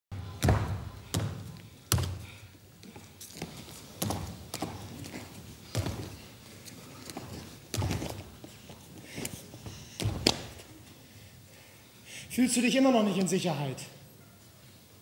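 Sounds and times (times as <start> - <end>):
feet thudding on stage floor: 7.1 - 8.5, 9.9 - 10.6.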